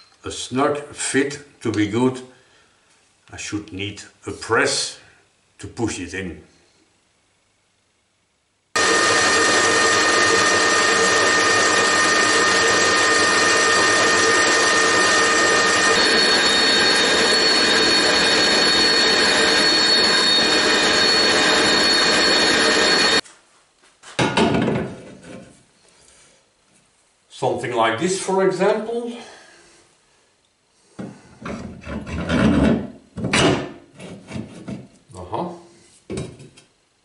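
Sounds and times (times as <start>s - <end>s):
metal lathe whining: 8.8s - 23.2s.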